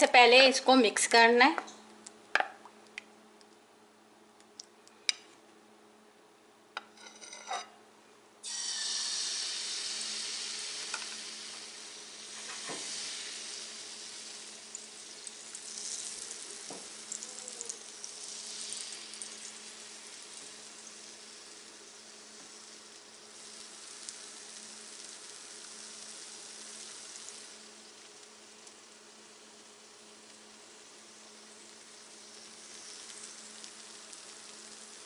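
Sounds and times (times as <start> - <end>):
batter sizzling in hot oil: 8.4 - 35.0.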